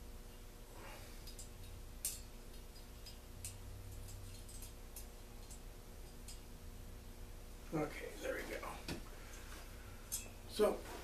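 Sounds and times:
small metallic clicks: 0:01.2 - 0:06.5.

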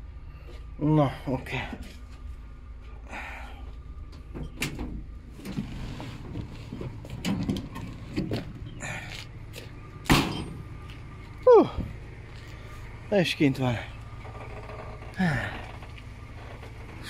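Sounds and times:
vehicle engine running: 0:00.0 - 0:17.0
metal clunks and knocks: 0:04.1 - 0:08.6, 0:10.0 - 0:10.8.

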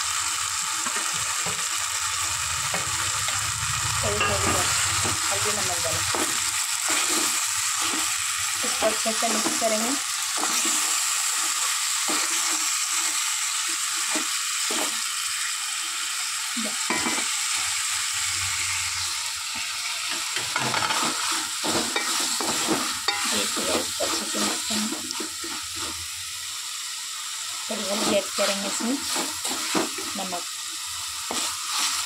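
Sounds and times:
vegetables sizzling in hot oil: 0:00.0 - 0:32.0
wooden spoon scraping a pot: 0:27.8 - 0:30.2.

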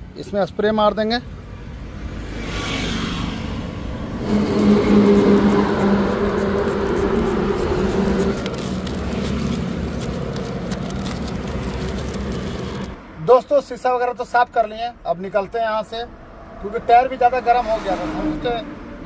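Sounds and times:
vehicle engine hum: 0:00.8 - 0:13.2
spray bottle hissing: 0:04.2 - 0:10.3.

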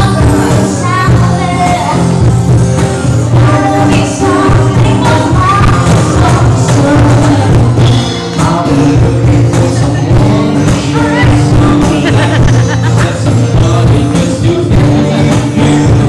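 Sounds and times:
woman and man singing: 0:00.0 - 0:02.3, 0:03.2 - 0:16.0
acoustic guitar: 0:00.0 - 0:16.0.

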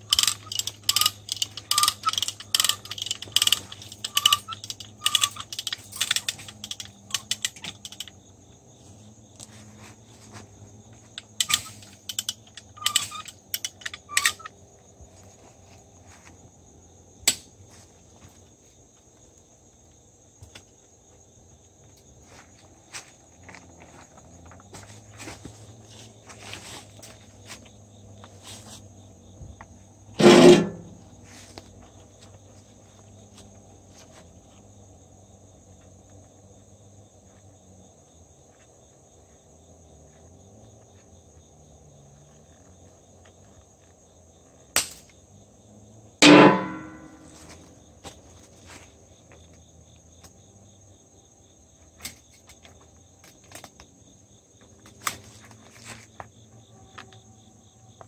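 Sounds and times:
wire and chain clicks: 0:00.0 - 0:08.2, 0:11.2 - 0:14.5
crickets chirring: 0:00.0 - 0:58.0
metallic wire twang: 0:30.2 - 0:31.0, 0:46.2 - 0:47.4.

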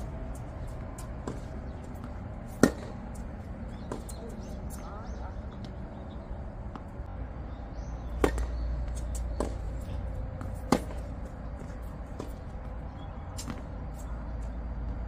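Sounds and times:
low steady rumble: 0:00.0 - 0:15.0
tennis ball popping off rackets: 0:00.4 - 0:04.4, 0:08.1 - 0:09.8, 0:10.4 - 0:12.6, 0:13.3 - 0:13.7.

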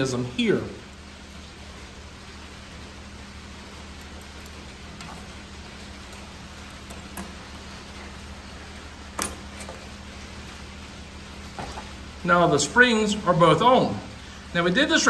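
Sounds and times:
low steady hum: 0:00.0 - 0:15.0
spring hooking into place: 0:09.2 - 0:09.9.

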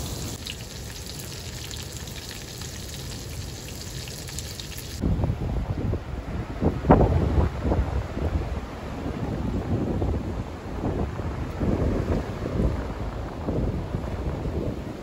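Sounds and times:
burgers sizzling in a frying pan: 0:00.0 - 0:05.0
wind gusting against microphone: 0:04.7 - 0:15.0.

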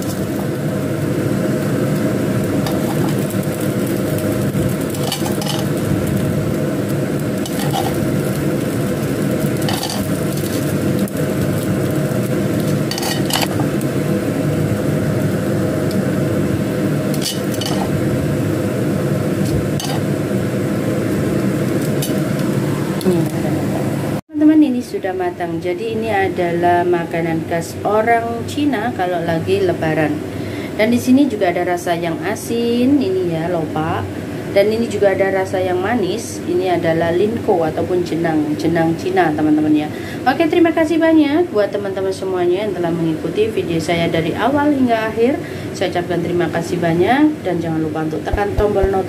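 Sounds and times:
food sizzling in a frying pan: 0:00.0 - 0:24.2
metal utensil scraping: 0:02.6 - 0:03.3, 0:04.9 - 0:05.8, 0:07.4 - 0:08.0, 0:09.6 - 0:10.6, 0:12.7 - 0:13.7, 0:17.1 - 0:18.0, 0:19.4 - 0:20.1.

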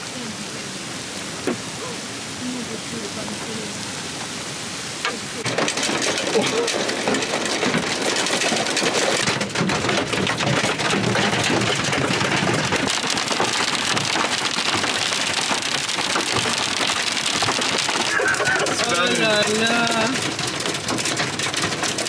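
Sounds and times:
rain hissing: 0:00.0 - 0:22.0
hail clattering on metal roof: 0:05.0 - 0:22.0.

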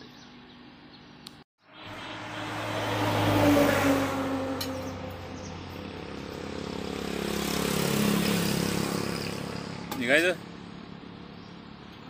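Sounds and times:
motor vehicles passing by: 0:00.1 - 0:12.0.

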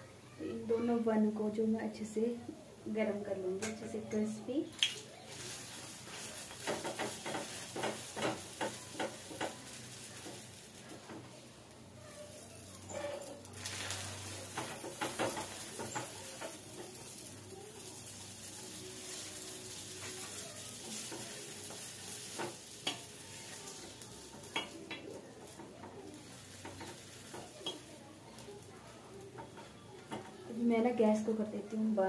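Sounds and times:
buns sizzling on a griddle: 0:00.0 - 0:32.0
metal spatula scraping a pan: 0:12.3 - 0:28.5.

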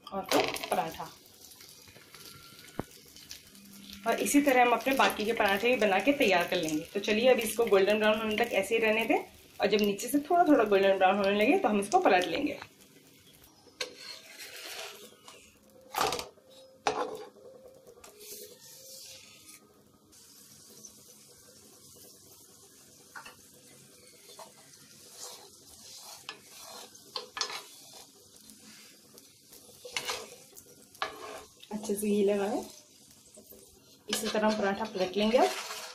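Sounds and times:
flatbread sizzling in fat: 0:00.0 - 0:35.9
spoon scraping griddle: 0:13.8 - 0:15.9, 0:16.5 - 0:22.2, 0:23.1 - 0:35.9
clatter of flatbread turned: 0:24.3 - 0:28.2, 0:35.4 - 0:35.9.

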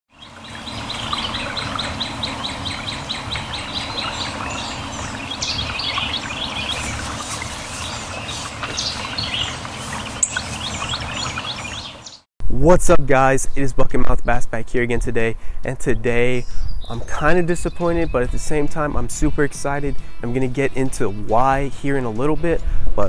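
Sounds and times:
songbirds chirping: 0:00.1 - 0:12.3, 0:13.5 - 0:22.7
low steady rumble: 0:00.2 - 0:16.4.

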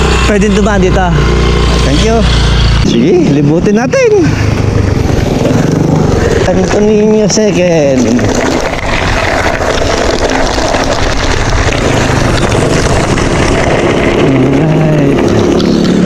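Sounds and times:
motorcycle engine approaching: 0:00.0 - 0:16.0
bike tyres on gravel: 0:04.6 - 0:16.0.

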